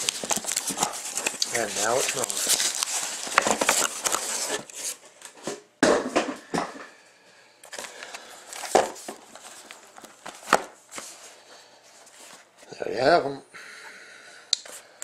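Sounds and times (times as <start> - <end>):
cardboard scraping and rustling: 0.0 - 5.0.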